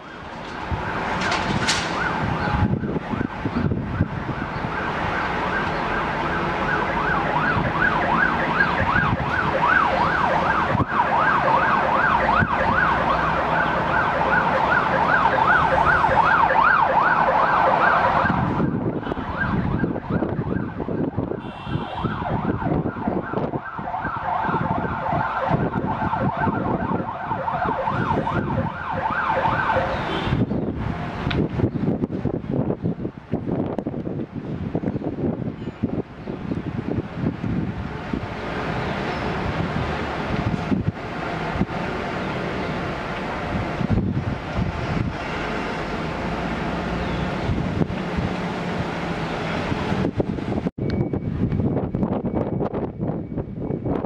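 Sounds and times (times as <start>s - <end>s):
fire engine siren yelping: 0.0s - 30.9s.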